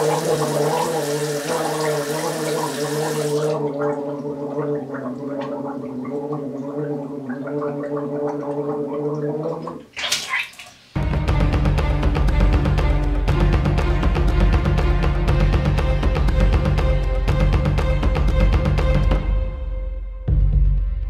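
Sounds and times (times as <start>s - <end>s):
person gargling: 0.0s - 9.9s
music: 11.0s - 21.0s.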